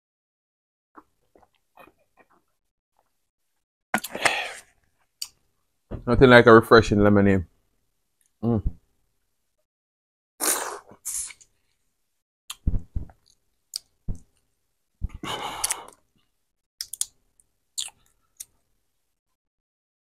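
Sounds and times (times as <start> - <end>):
wet sucking of fingers: 10.4 - 11.5.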